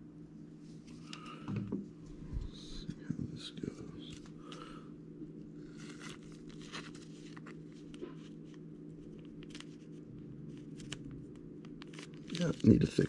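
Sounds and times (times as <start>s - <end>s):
low hum: 0.0s - 12.4s
plastic packaging rustling: 5.6s - 11.1s, 11.7s - 13.0s.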